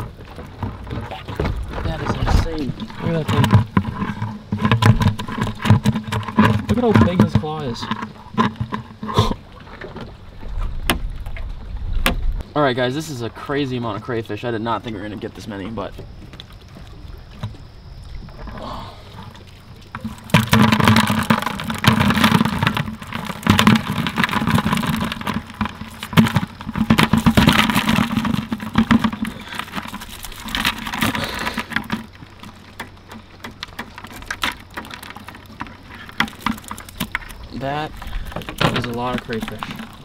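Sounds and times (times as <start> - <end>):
crayfish clattering into bucket: 0.0 - 9.4, 19.9 - 40.0.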